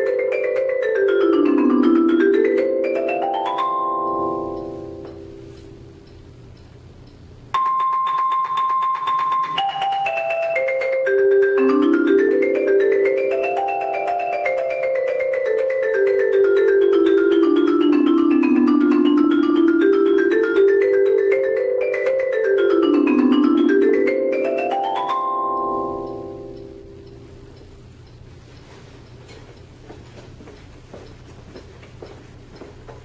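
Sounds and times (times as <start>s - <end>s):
marimba played with four mallets: 0.0s - 6.1s, 7.6s - 27.4s.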